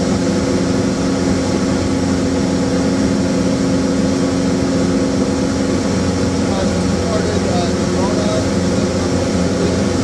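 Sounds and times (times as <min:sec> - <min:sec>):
small plane engine droning: 0:00.0 - 0:10.0.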